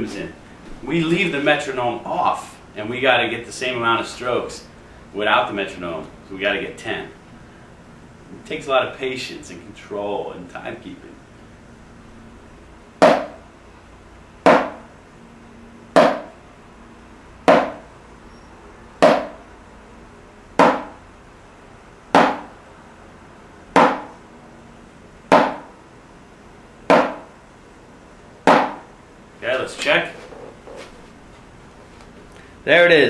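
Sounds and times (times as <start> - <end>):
drumsticks tapping practice pad: 13.0 - 13.4, 14.5 - 14.9, 16.0 - 16.4, 17.5 - 17.8, 19.0 - 19.4, 20.6 - 21.0, 22.2 - 22.5, 23.8 - 24.2, 25.3 - 25.8, 26.9 - 27.3, 28.5 - 28.9.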